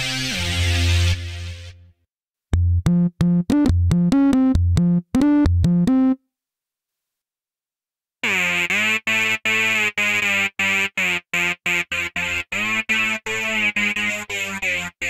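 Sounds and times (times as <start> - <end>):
synthesizer melody of short notes: 2.6 - 6.2.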